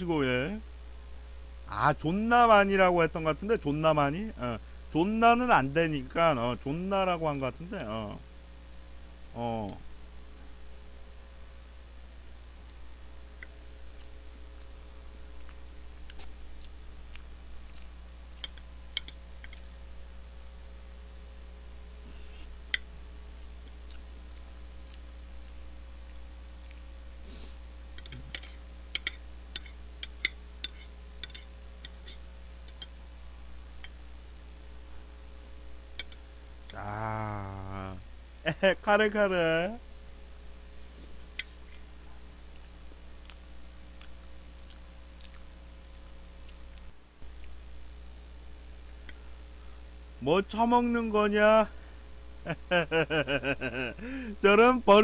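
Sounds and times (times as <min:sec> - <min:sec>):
steady low hum: 0:00.0 - 0:55.0
man chewing: 0:13.4 - 0:19.7, 0:23.6 - 0:32.8, 0:41.0 - 0:47.8
cutlery clicking on food tray: 0:28.0 - 0:32.9.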